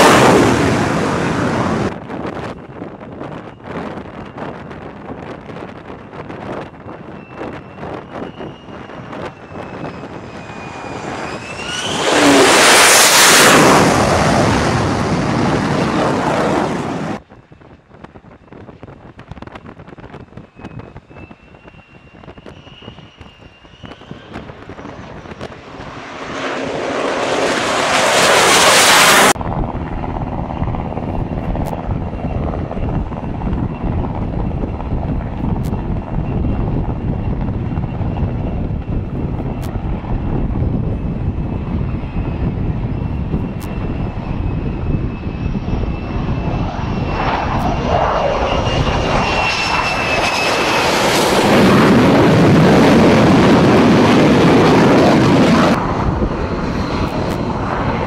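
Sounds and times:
jet fighter passing overhead: 0.0 - 17.2, 20.4 - 58.0
distant jet noise with high whine: 0.0 - 58.0.

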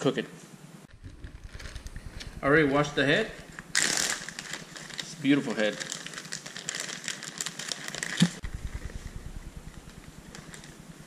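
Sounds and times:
plastic bag crinkling: 0.9 - 8.5.

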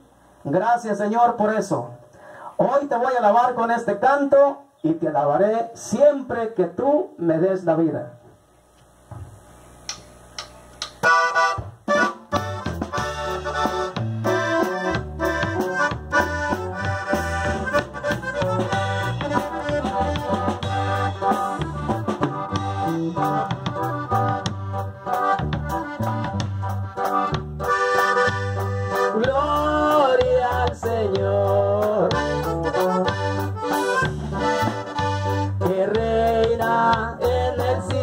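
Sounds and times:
band playing: 10.9 - 38.0
accordion melody: 11.0 - 38.0.

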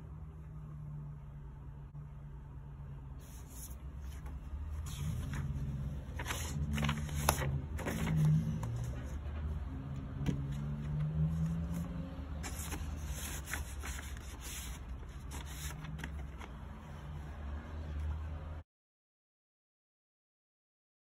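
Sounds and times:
steady low hum: 0.0 - 17.3
paper sleeve rustling: 3.2 - 9.2, 10.3 - 16.8.

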